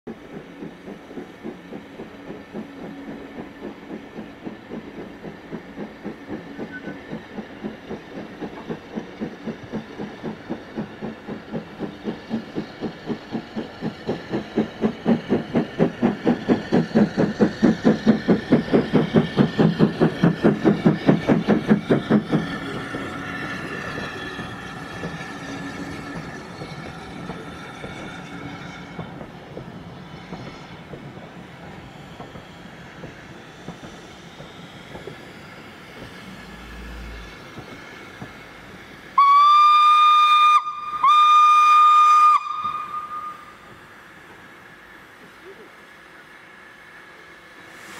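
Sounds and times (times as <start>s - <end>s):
steam locomotive exhaust beats: 0.1s - 47.9s.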